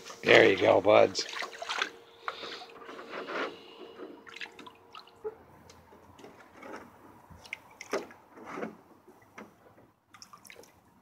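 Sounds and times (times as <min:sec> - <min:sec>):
small water splashes and drips: 0:01.2 - 0:02.0, 0:04.2 - 0:05.4, 0:07.3 - 0:08.2, 0:10.1 - 0:11.0.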